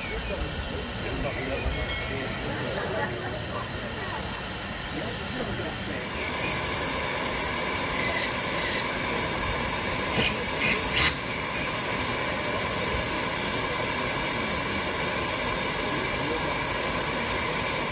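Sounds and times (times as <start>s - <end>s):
steam hissing from engine: 0.0s - 17.9s.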